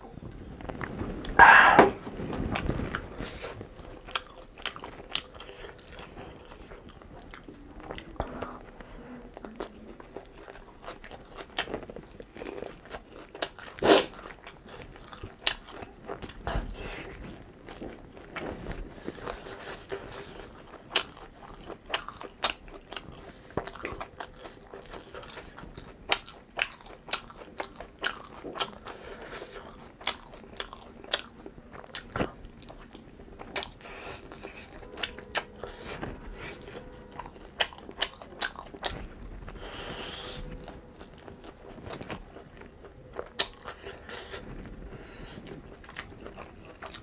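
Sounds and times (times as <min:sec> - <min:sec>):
person chewing crunchy food: 0:00.3 - 0:47.0.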